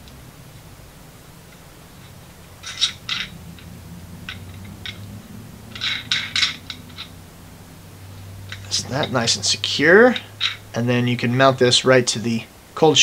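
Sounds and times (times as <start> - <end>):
scrapes: 1.9 - 7.2.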